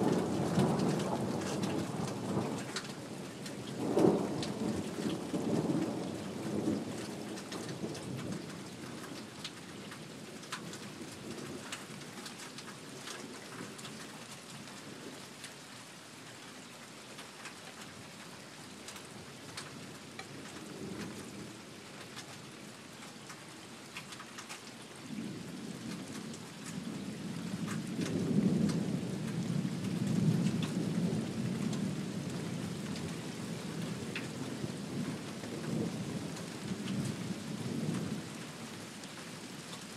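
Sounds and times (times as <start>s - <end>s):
rolling thunder: 0.0s - 8.3s, 25.1s - 38.4s
steady rain: 0.0s - 39.9s.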